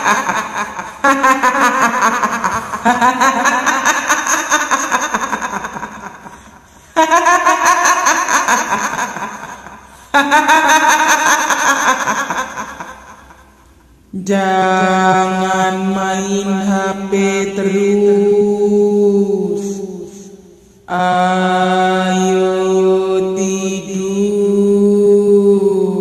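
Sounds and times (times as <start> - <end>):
woman's ghostly cackling laugh: 0.0 - 13.7.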